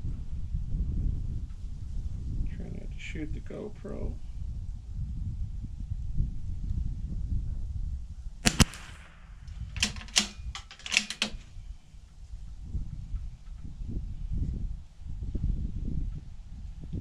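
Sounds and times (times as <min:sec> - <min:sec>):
rifle shot: 0:08.4 - 0:11.4
rifle bolt clicking: 0:08.5 - 0:11.4.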